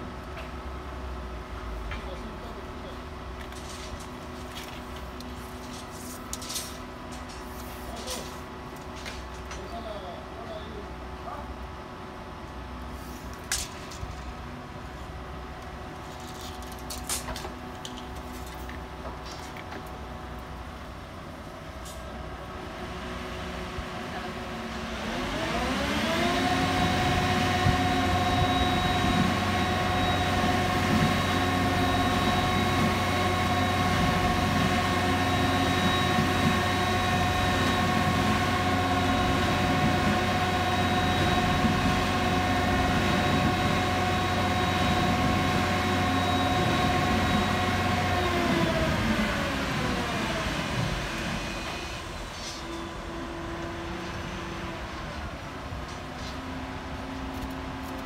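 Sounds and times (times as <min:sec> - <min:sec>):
high whine: 0:23.2 - 0:55.2.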